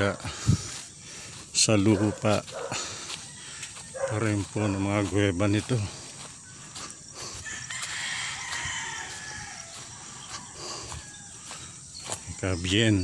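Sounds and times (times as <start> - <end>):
rooster crowing: 7.3 - 12.5.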